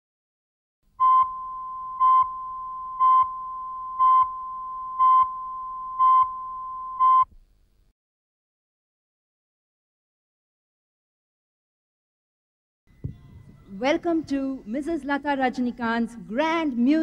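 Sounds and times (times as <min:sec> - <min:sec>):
countdown beeps: 0:01.0 - 0:07.3.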